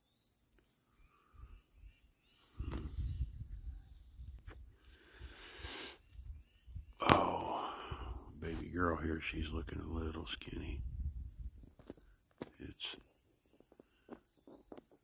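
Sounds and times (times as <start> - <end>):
crickets chirping: 0.0 - 15.0
low rumbling on microphone: 6.3 - 11.8.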